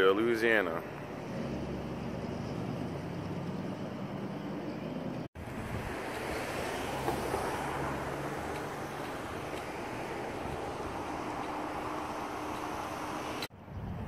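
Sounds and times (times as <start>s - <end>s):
traffic hum: 0.0s - 14.0s
wind on microphone: 5.4s - 7.6s, 8.3s - 14.0s.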